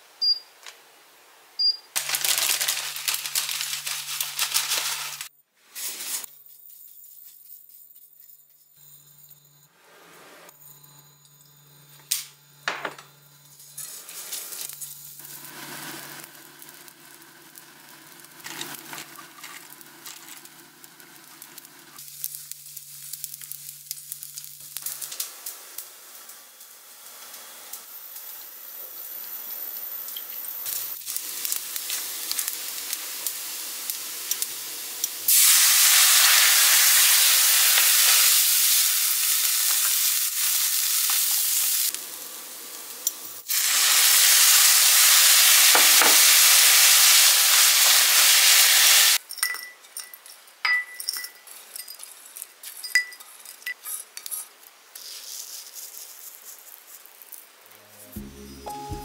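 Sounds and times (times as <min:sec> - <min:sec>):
food sizzling in hot pan: 0:02.0 - 0:06.3, 0:13.2 - 0:49.2
sauce poured into hot pan: 0:35.2 - 0:42.5, 0:43.5 - 0:49.2.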